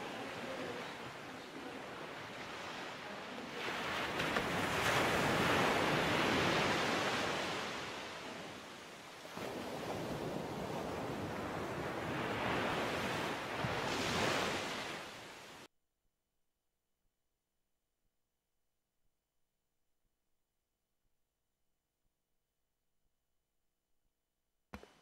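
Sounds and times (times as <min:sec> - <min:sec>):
ocean surf washing in: 0:00.0 - 0:15.7.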